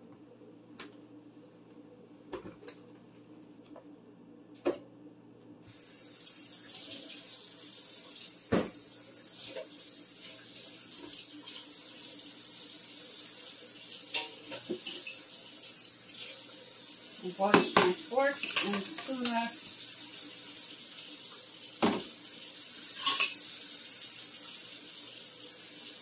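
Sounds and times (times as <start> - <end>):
water running into sink: 5.7 - 26.0
knocks and clunks in sink: 8.5 - 8.8, 17.5 - 18.0, 21.8 - 22.1.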